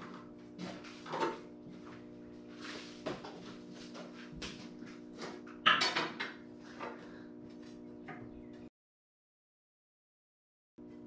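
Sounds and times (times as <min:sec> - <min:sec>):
steady hum: 0:00.0 - 0:08.7.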